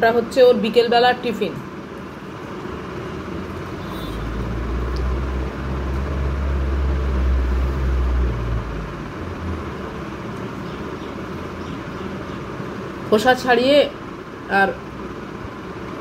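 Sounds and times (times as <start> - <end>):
low rumble: 4.1 - 10.0.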